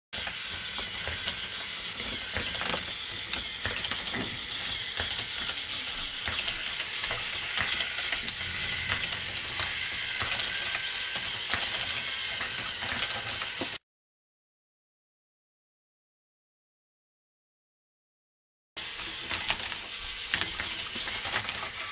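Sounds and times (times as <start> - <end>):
ball machine rattling: 0.2 - 13.8, 18.8 - 21.9.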